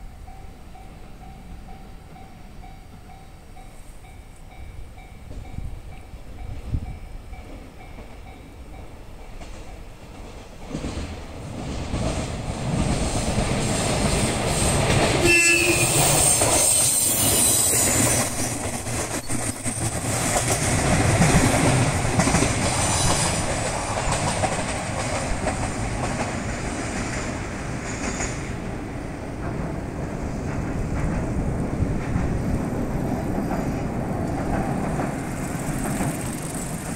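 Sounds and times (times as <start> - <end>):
diesel railcar passing: 0.0 - 36.9
wheels clattering over rail joints: 9.2 - 36.9
train horn blast: 15.2 - 16.4.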